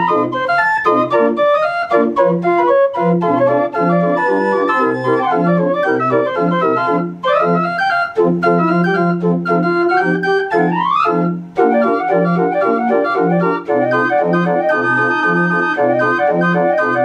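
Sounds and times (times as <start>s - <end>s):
instrumental keyboard music: 0.0s - 17.0s.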